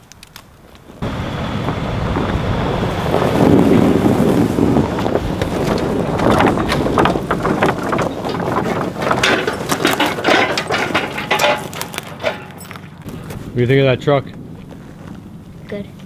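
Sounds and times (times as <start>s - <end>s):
snow crunching and cracking: 0.0s - 10.6s, 11.2s - 15.9s
wind noise on microphone: 0.0s - 10.6s
truck engine running: 1.0s - 16.0s.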